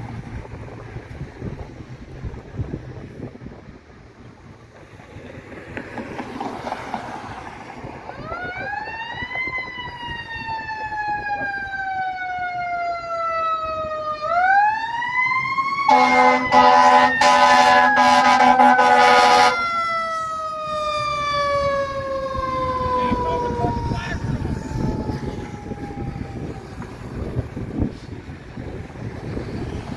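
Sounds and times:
truck air horn: 0:15.9 - 0:19.6.

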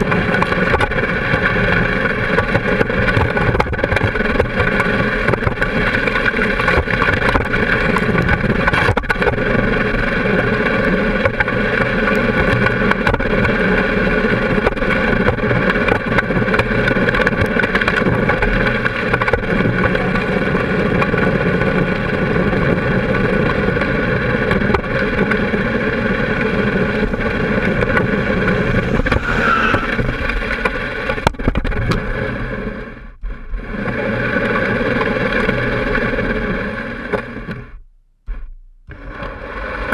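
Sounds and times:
wind noise: 0:00.0 - 0:37.7
road noise: 0:00.0 - 0:37.8, 0:38.8 - 0:39.9
engine running: 0:00.0 - 0:39.9.

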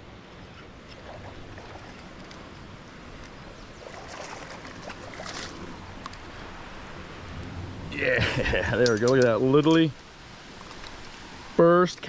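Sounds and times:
wind rumble on microphone: 0:00.0 - 0:11.6
water splashing: 0:00.8 - 0:02.6, 0:03.6 - 0:07.0.

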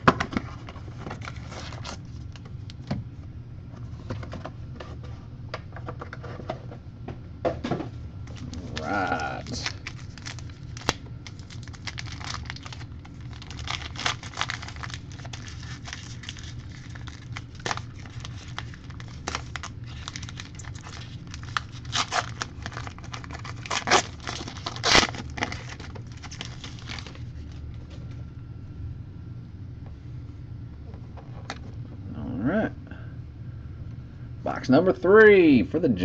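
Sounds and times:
cardboard and cards rustling: 0:00.0 - 0:02.5, 0:07.7 - 0:28.2
steady low hum: 0:00.0 - 0:36.0.

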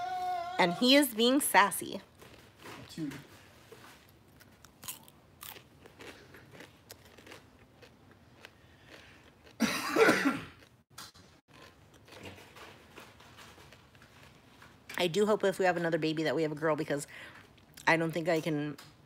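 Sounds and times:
crunchy chewing: 0:04.0 - 0:09.6
person coughing: 0:09.6 - 0:10.6.

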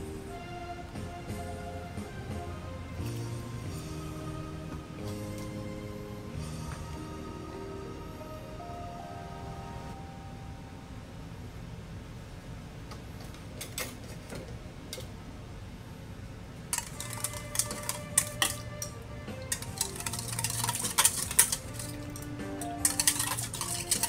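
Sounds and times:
background music: 0:00.0 - 0:11.2, 0:16.8 - 0:24.0
whisk beating in metal bowl: 0:16.8 - 0:24.0.

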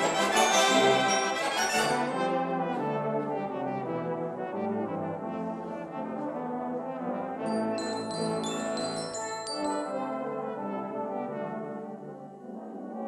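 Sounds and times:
brass band playing chords: 0:00.0 - 0:07.4.

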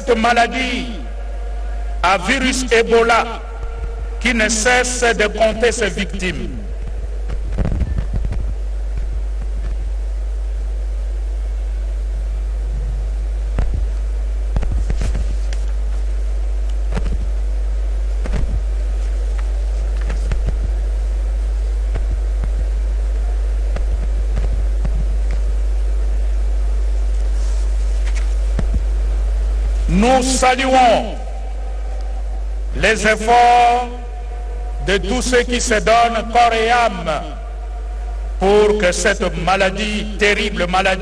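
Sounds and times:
deep electrical hum: 0:00.0 - 0:41.0.

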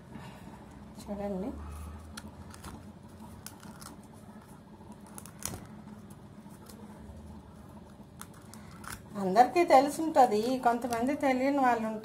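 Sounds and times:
faint crackles and clicks: 0:02.0 - 0:09.2.

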